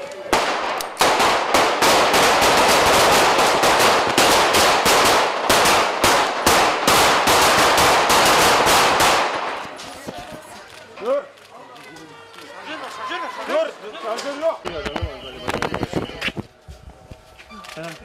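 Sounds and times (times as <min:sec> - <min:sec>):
rapid overlapping gunfire: 0:00.3 - 0:09.8.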